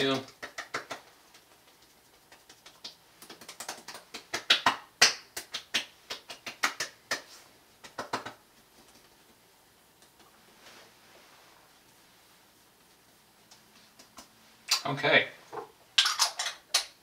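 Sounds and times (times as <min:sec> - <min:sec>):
hands slapping skin: 0:00.1 - 0:09.1, 0:13.4 - 0:14.8.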